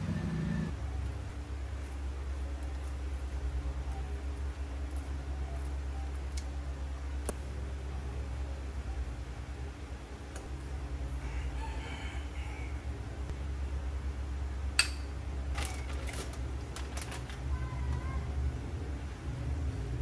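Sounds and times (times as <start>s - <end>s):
steady low hum: 0.0s - 20.0s
rooster crowing faintly: 11.1s - 13.2s.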